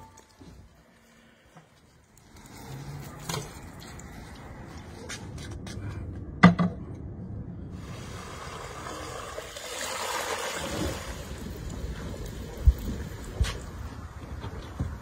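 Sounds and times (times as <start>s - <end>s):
water pouring and splashing: 1.7s - 4.8s, 7.8s - 13.9s.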